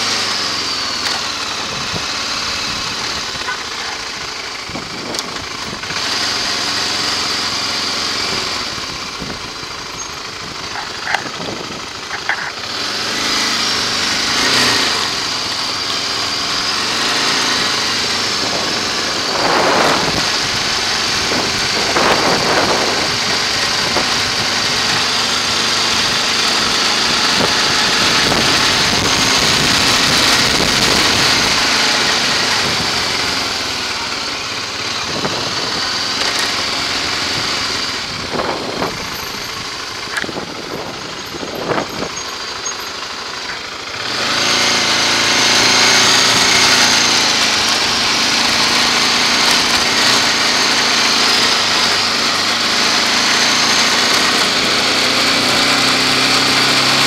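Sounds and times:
motorcycle engine running: 0:00.0 - 0:57.0
wind rush: 0:18.2 - 0:24.6, 0:27.3 - 0:31.7.

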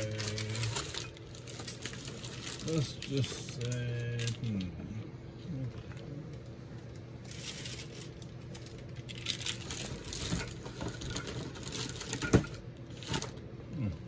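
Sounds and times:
packaging rustling and crinkling: 0:00.0 - 0:04.6, 0:06.8 - 0:13.4.

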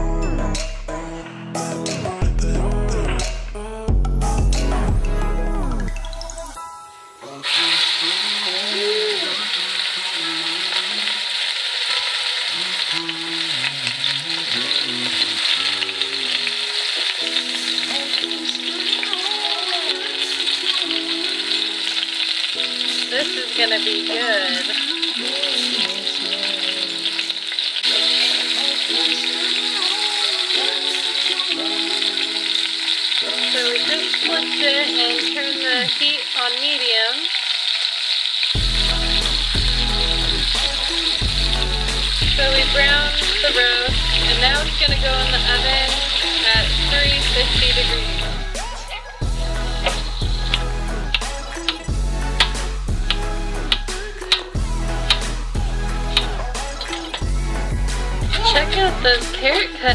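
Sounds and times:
soft melody: 0:00.0 - 0:09.0
background music: 0:00.0 - 0:37.3, 0:38.6 - 0:59.9
meat sizzling in hot oil: 0:07.4 - 0:59.9.

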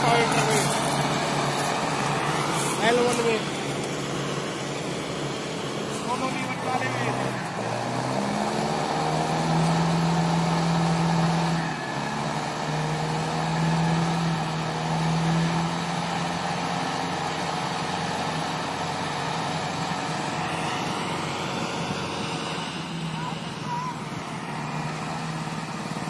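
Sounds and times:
diesel tractor engine running: 0:00.0 - 0:26.0.

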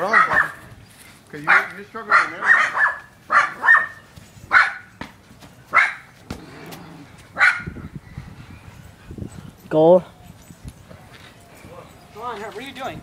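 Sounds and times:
dog barking: 0:00.0 - 0:00.6, 0:01.4 - 0:04.9, 0:05.7 - 0:06.1, 0:07.4 - 0:07.8.

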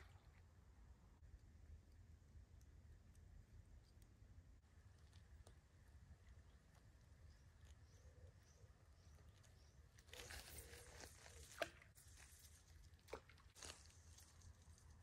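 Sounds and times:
small clicks and crackles: 0:02.5 - 0:08.0, 0:09.1 - 0:15.0.

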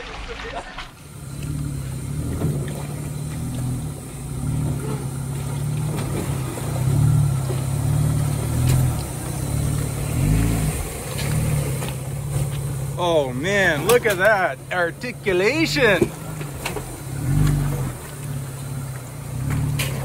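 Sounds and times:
truck engine at low revs: 0:00.0 - 0:20.0.

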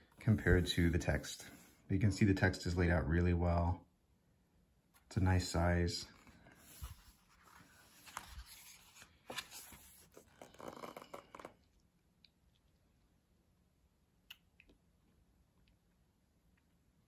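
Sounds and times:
book pages rustling: 0:06.1 - 0:11.6.

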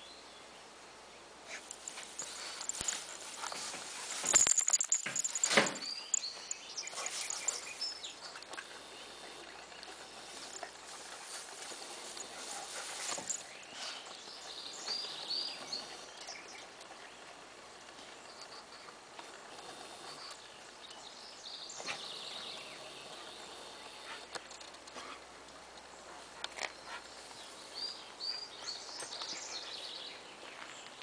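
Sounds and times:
rustling and crunching of hay: 0:01.5 - 0:18.4.

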